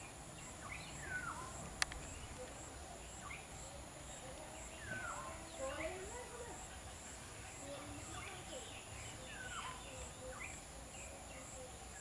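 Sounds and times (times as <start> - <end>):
sharp click: 1.8 - 2.1.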